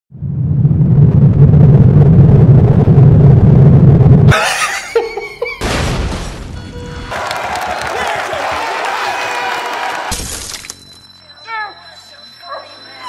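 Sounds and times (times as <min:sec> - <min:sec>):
deep rumble: 0:00.1 - 0:04.3
fireball explosion: 0:05.6 - 0:06.6.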